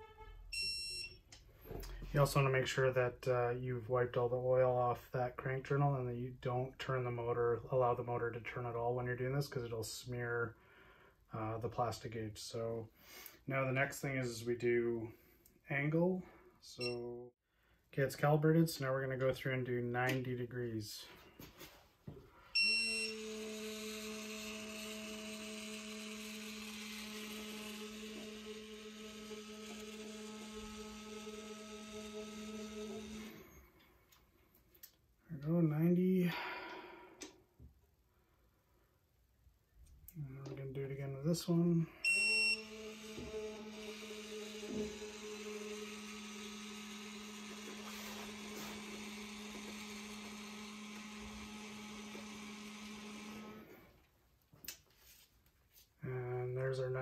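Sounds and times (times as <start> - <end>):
electronic buzz: 22.6 - 33.6, 42.0 - 53.7.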